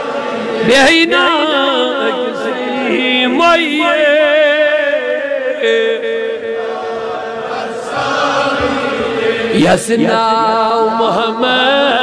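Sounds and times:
man chanting: 0.6 - 6.6, 9.5 - 12.0.

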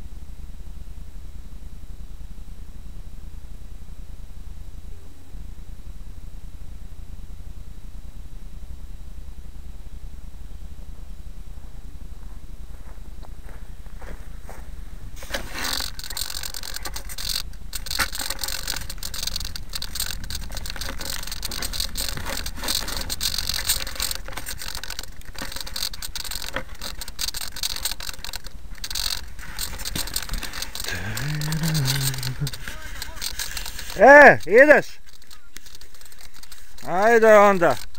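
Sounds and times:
knocks and crackles: 15.1 - 37.9
camera handling rustling and scraping: 15.2 - 37.9.

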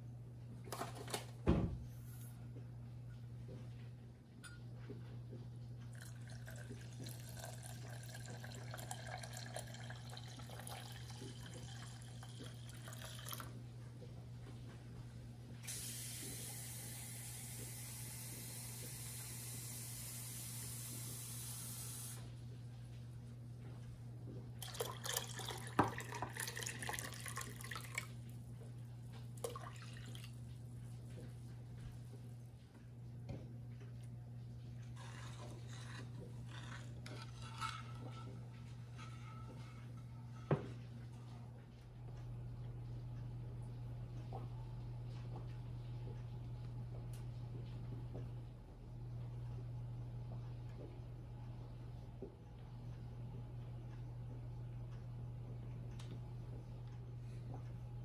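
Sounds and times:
steady low hum: 0.0 - 58.0
liquid pouring into saucepan: 6.0 - 13.5, 24.6 - 28.1, 29.4 - 30.4.

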